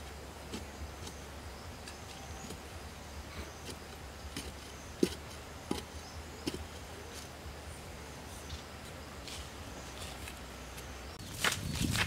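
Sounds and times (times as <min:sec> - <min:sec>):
digging bar thudding into soil: 0:03.6 - 0:06.8.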